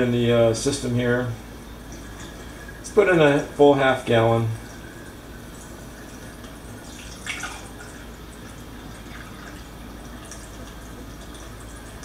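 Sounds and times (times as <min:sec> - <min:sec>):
water pouring through funnel: 0:01.9 - 0:12.0
water splashing: 0:03.9 - 0:12.0.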